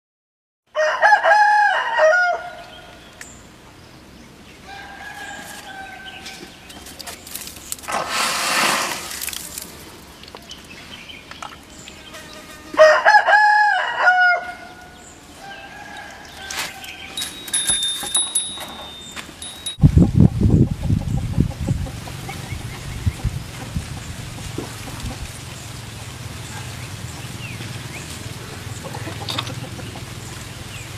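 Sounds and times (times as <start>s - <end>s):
rooster crowing: 0.7s - 2.7s, 4.6s - 6.2s, 12.8s - 14.8s
short rushing hiss: 7.9s - 9.2s.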